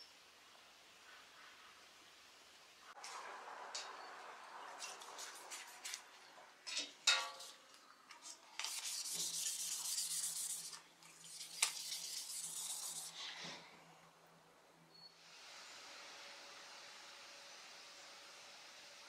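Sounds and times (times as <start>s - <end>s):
brush scrubbing blade under water: 8.2s - 13.3s
water splashing: 9.2s - 13.1s.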